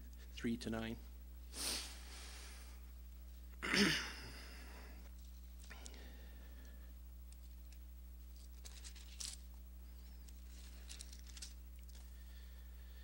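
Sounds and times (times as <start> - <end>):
low hum: 0.0 - 13.0
pages being turned: 7.3 - 12.1.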